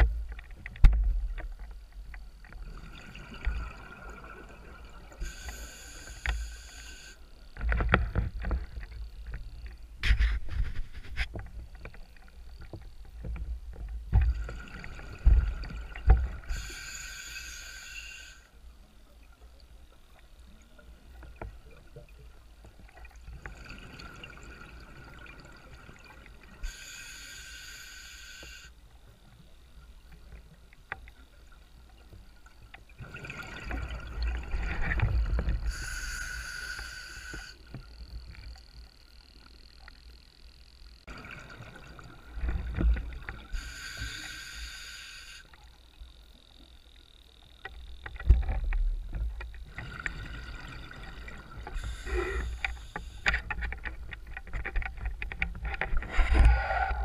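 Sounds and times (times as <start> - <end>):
exhaled bubbles rumbling: 0.0 - 5.2, 32.9 - 35.8
regulator inhalation hiss: 5.2 - 7.3, 16.4 - 18.5, 26.6 - 28.8, 35.6 - 37.8, 43.5 - 45.6, 51.6 - 53.6.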